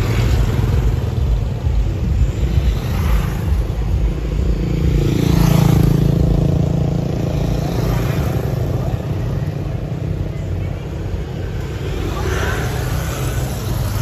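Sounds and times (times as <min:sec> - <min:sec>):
motorbike passing close: 0:00.0 - 0:10.3
street traffic: 0:00.0 - 0:14.0.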